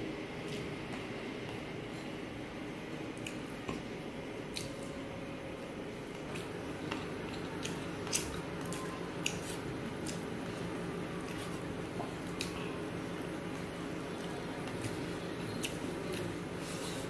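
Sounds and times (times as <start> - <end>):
low background hum: 0.0 - 17.0
wet chewing mouth sounds: 6.2 - 10.6, 13.5 - 17.0.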